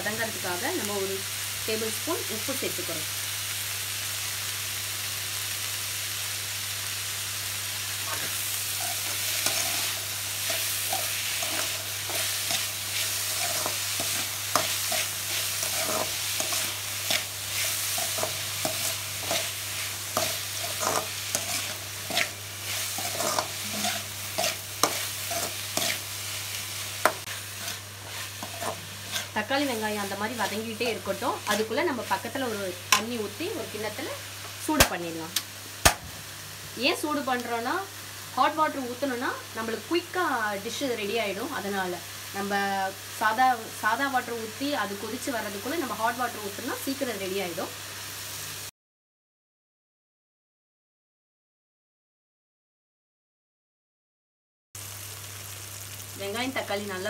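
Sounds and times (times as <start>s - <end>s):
onions and tomatoes sizzling in oil: 0.0s - 48.7s, 54.8s - 57.0s
metal ladle scraping a pan: 8.1s - 26.1s, 27.0s - 29.7s.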